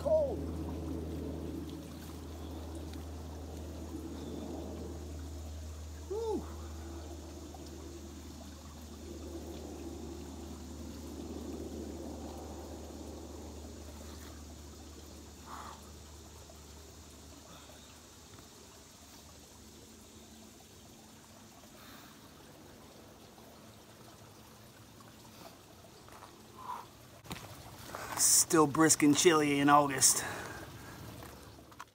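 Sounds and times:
water trickling: 0.0 - 31.9
water splashing over body: 24.7 - 31.9.

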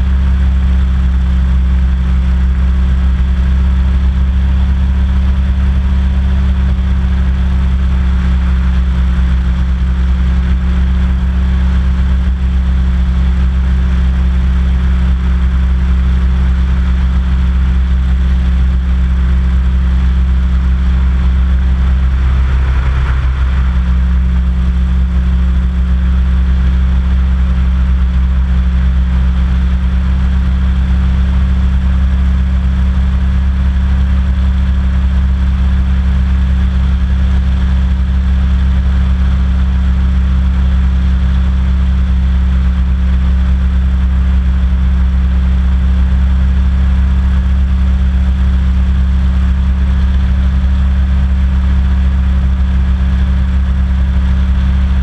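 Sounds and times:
hovercraft engine droning: 17.8 - 29.2.

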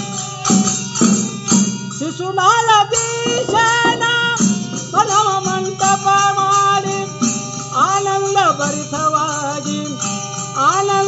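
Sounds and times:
percussion beat: 0.0 - 11.0
person singing: 2.0 - 10.0.

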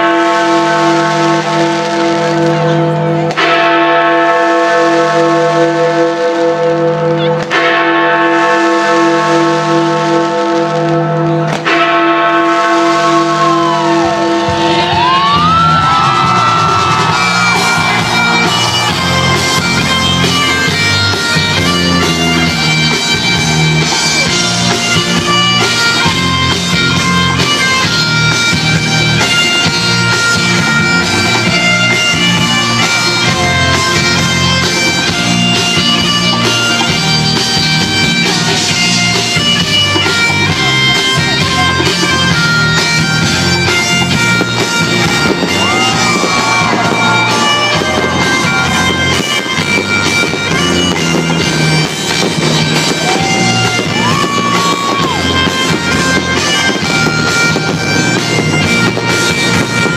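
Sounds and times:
loud music with steady beat: 12.8 - 59.9.

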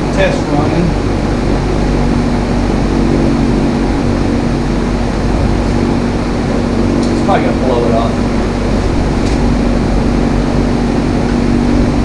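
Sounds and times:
single-cylinder engine running: 0.0 - 12.0.

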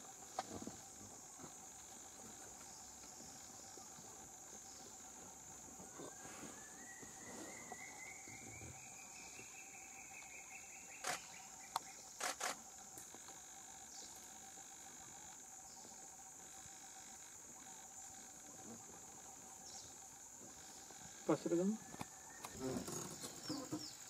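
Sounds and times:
high-pitched insect chorus: 0.0 - 24.0
sharp clicks: 11.0 - 13.1.

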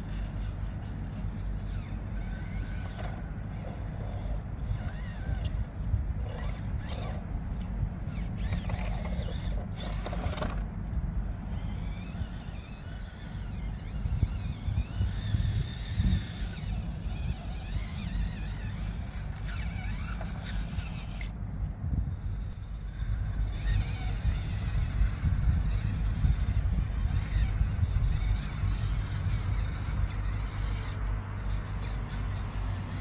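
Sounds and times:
electric motor and gears whining: 0.0 - 33.0.

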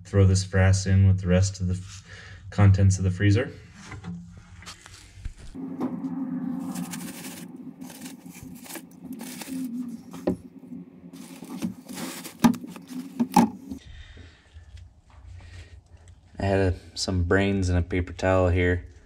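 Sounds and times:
steady low hum: 3.6 - 17.0
cardboard and wood shavings rustling: 6.6 - 10.5, 11.1 - 13.8.

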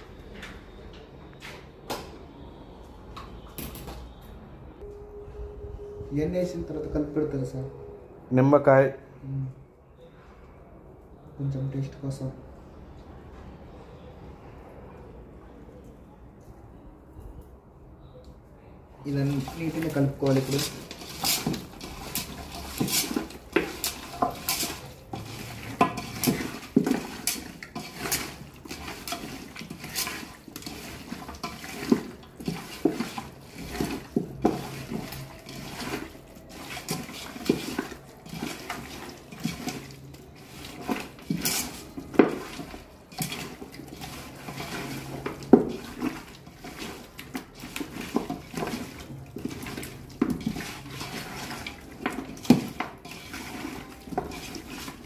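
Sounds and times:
knocks and scrapes on metal pot: 19.1 - 55.0.

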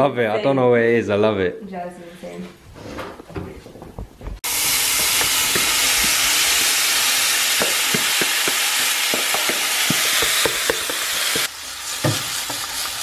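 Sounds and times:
prawns sizzling in a frying pan: 4.4 - 13.0.

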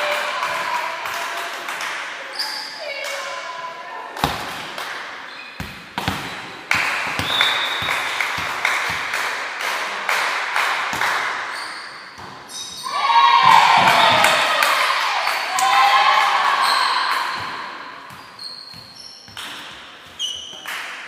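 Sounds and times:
volleyball thuds in a hall: 0.0 - 21.0.

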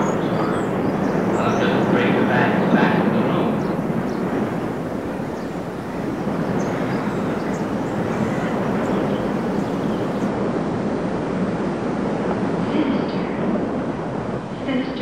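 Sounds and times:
dense rumbling noise: 0.0 - 11.4.

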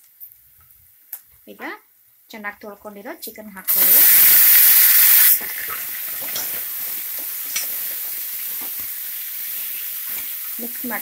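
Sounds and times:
chicken sizzling in hot oil: 3.7 - 11.0.

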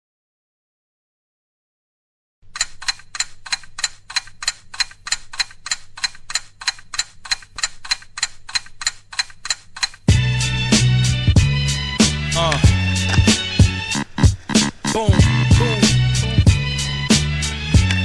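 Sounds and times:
clock ticking: 2.5 - 10.5, 12.0 - 18.0
hip-hop music with heavy beat: 10.1 - 18.0.

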